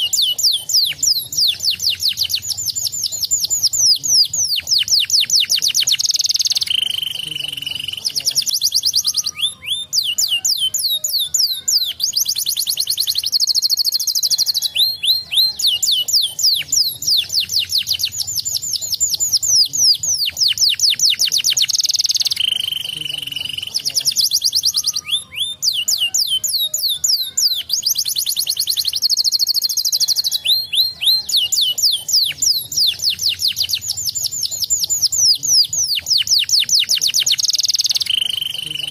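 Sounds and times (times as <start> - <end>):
canary singing trills: 0.0 - 38.9.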